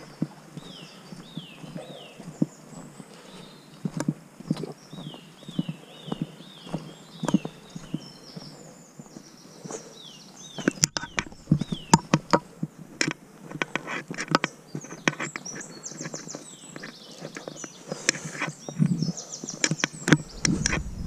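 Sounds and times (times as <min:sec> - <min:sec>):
footsteps on muddy path: 0:00.0 - 0:09.9.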